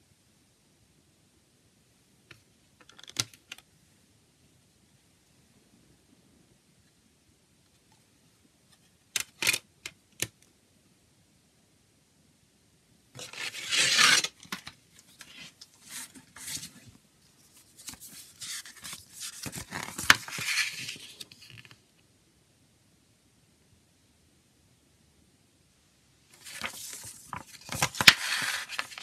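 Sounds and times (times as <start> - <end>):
paper scraping against plastic: 13.2 - 16.9, 17.7 - 21.6, 26.4 - 29.0.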